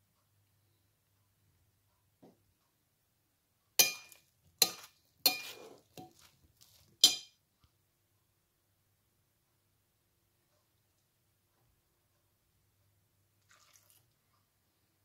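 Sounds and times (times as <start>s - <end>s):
spoon clinking on glass bowl: 3.8s - 6.3s, 7.0s - 7.4s.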